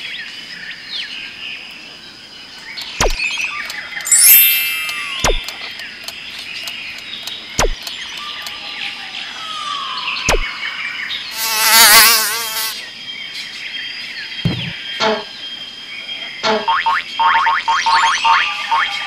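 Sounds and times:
quick falling swoops: 10.3s - 10.5s
high buzzing and chirping: 11.3s - 12.9s.

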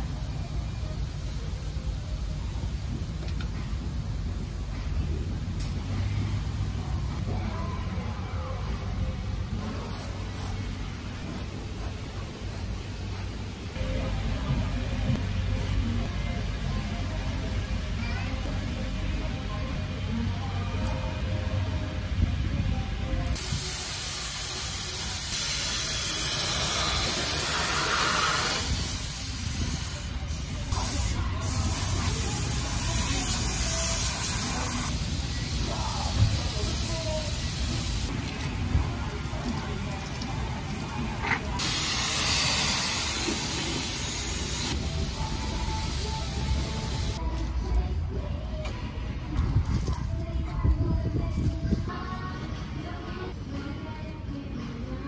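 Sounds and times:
pressure washer spraying water: 23.4s - 38.4s, 41.6s - 47.2s.

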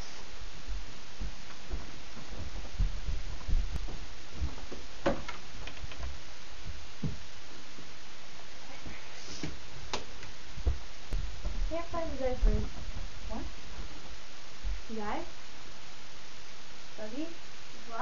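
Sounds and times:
steady hiss: 0.0s - 18.0s
footsteps thumping: 0.6s - 6.2s, 7.0s - 7.3s, 9.4s - 13.9s.

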